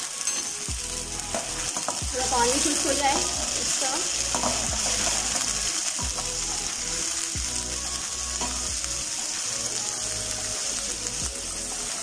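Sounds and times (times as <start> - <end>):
syrup bubbling and sizzling in pan: 0.0 - 12.0
spoon knocking against pan: 4.3 - 5.2.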